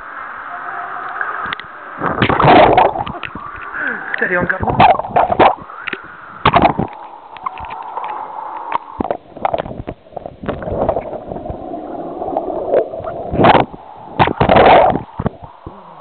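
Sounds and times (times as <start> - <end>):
underwater gurgling and rushing: 0.0 - 16.0.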